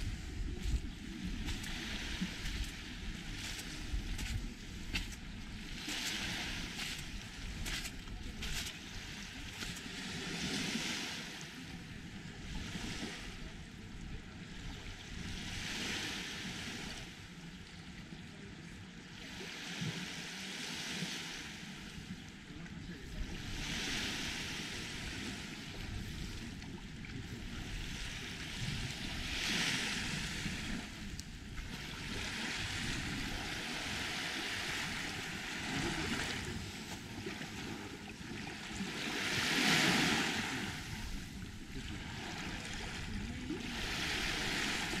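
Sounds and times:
waves washing on pebbly shore: 0.0s - 11.7s, 15.0s - 17.2s, 22.5s - 26.6s, 27.2s - 45.0s.

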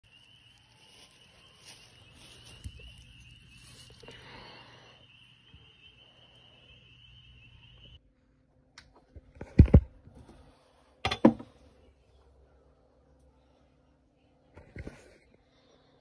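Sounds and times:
high insect trill: 0.0s - 8.0s
machete knocking on rubber mat: 11.1s - 11.4s.

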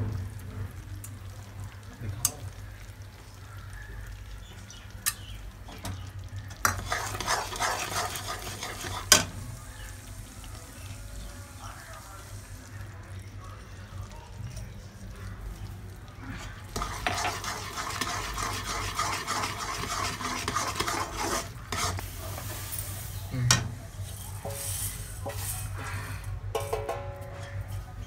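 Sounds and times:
syrup bubbling and sizzling: 0.0s - 26.6s
ladle scraping in metal pot: 6.6s - 9.3s, 16.4s - 23.2s, 24.1s - 26.0s.

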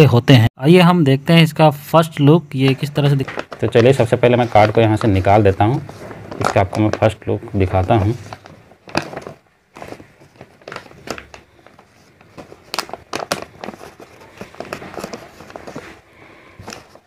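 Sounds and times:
paper crinkling and rustling: 2.6s - 17.0s.

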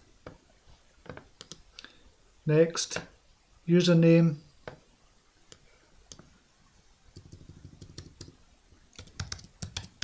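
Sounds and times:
keyboard typing: 7.2s - 8.4s, 9.0s - 10.0s.

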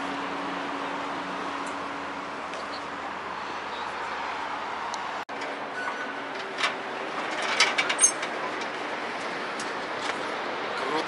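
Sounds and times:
street traffic noise: 0.0s - 11.0s
metallic knocks and clanks: 5.3s - 8.8s.

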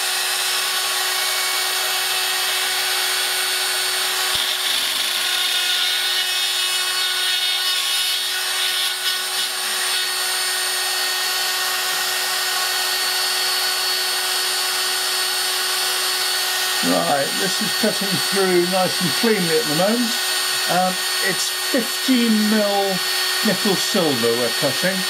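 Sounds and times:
cutter hissing through metal sheet: 0.0s - 25.0s
rotary drill motor whine: 0.0s - 25.0s.

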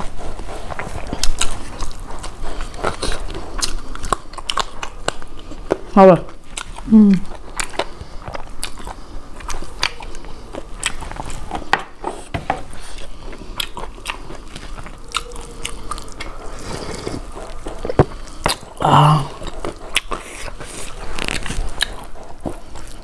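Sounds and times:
chewing with wet mouth clicks: 0.0s - 12.0s, 12.7s - 23.0s
food crunching: 0.0s - 23.0s
person humming: 6.9s - 7.3s, 18.8s - 19.5s.

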